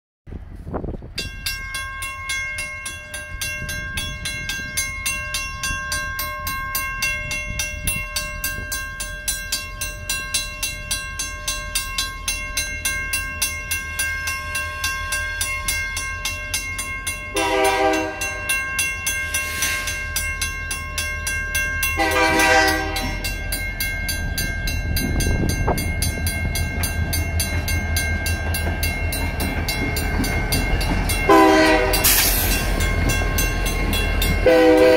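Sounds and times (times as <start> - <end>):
diesel locomotive rumble: 0.3 - 34.9
crossing bell ringing: 1.0 - 34.9
locomotive horn blasts: 17.3 - 18.5, 22.0 - 23.2, 31.3 - 32.2, 34.4 - 34.9.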